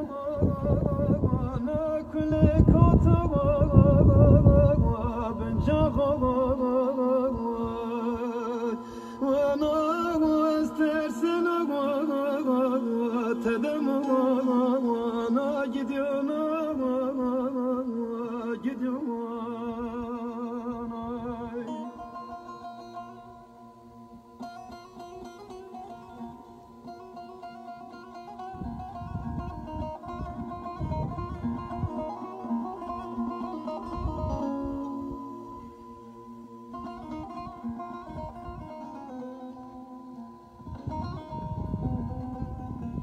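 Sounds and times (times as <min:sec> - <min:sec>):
solo voice singing: 0:00.0 - 0:22.3.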